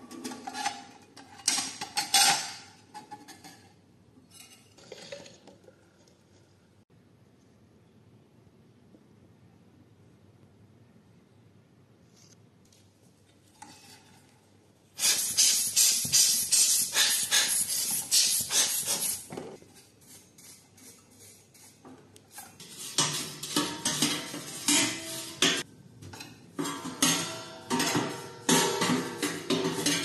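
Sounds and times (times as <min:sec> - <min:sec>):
brush scrubbing metal drum: 0:22.6 - 0:25.6.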